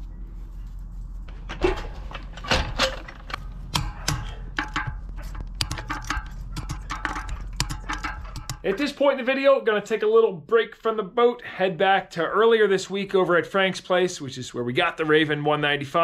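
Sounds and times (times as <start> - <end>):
low steady hum: 0.0 - 11.2
sharp clicks and knocks: 1.3 - 8.9.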